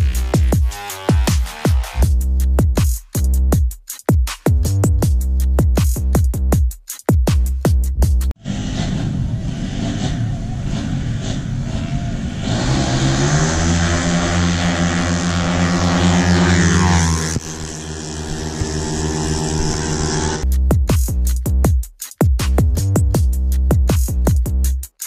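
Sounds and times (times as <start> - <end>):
scooter engine revving high: 8.4 - 20.4.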